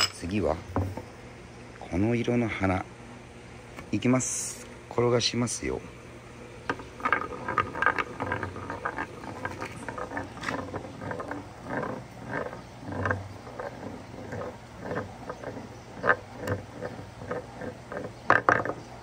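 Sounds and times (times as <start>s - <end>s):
marble rolling in wooden bowl: 6.6s - 19.0s.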